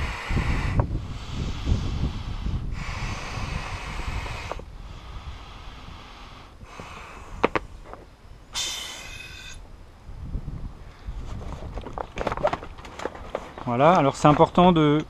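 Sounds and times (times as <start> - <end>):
breath blown into tube: 0.0 - 7.5
squeaky hiss: 8.5 - 9.6.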